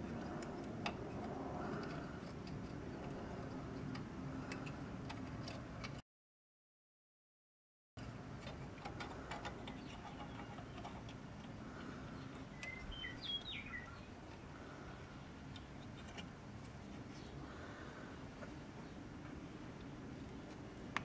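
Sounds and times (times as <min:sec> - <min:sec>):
bird chirp: 0:09.5 - 0:11.1, 0:11.8 - 0:15.3.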